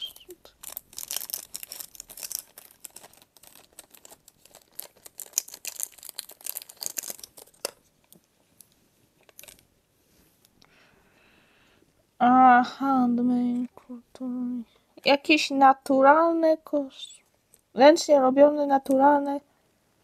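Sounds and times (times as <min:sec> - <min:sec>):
packaging crinkling: 0:00.0 - 0:09.7.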